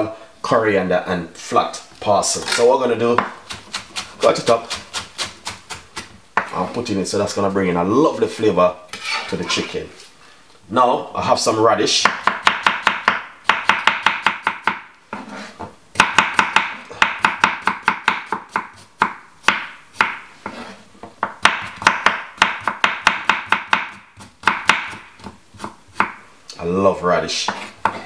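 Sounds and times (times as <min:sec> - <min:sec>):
knife chopping on wooden board: 0:03.2 - 0:06.5, 0:12.0 - 0:15.3, 0:16.0 - 0:26.2, 0:27.5 - 0:28.0.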